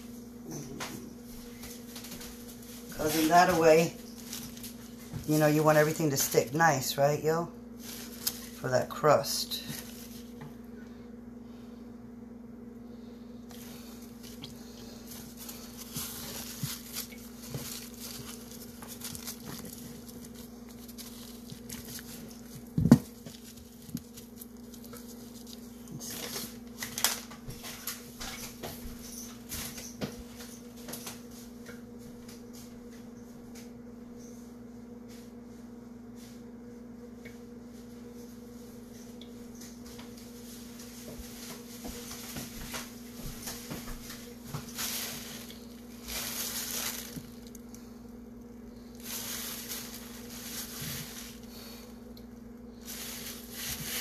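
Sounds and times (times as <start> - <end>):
steady low hum: 0.0 - 54.0
paper towels rustling on meat: 1.2 - 10.4, 13.5 - 30.3, 40.2 - 52.0, 52.7 - 54.0.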